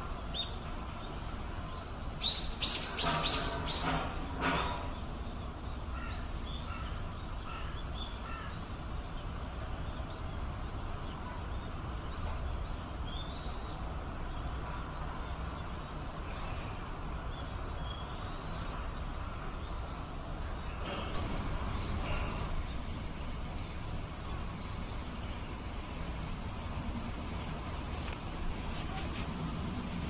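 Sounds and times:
steady low rumble: 21.2s - 30.0s.

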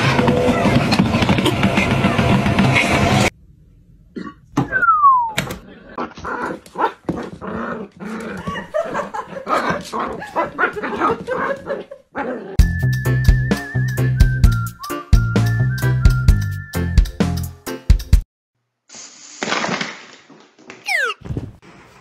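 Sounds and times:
dog yipping and whimpering: 20.9s - 21.3s.

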